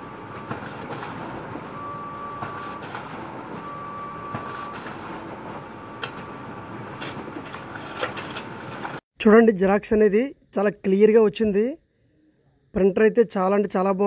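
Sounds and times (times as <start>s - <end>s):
printer mechanical whir: 0.0s - 9.0s.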